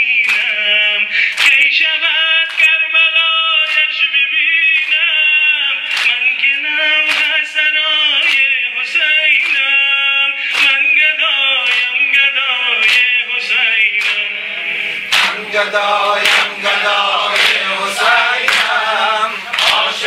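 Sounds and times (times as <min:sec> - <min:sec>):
men singing a lament: 0:00.0 - 0:20.0
chest-beating slaps: 0:15.1 - 0:15.4, 0:16.2 - 0:16.6, 0:17.3 - 0:17.6, 0:18.4 - 0:18.8, 0:19.5 - 0:19.9.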